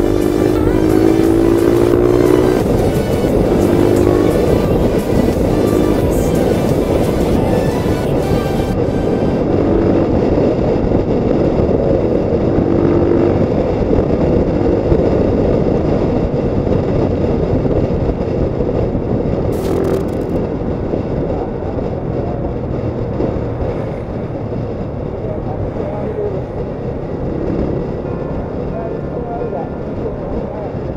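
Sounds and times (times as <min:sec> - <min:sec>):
motorcycle engine hum: 0:00.0 - 0:30.9
road rumble: 0:00.0 - 0:30.9
wind: 0:00.0 - 0:30.9.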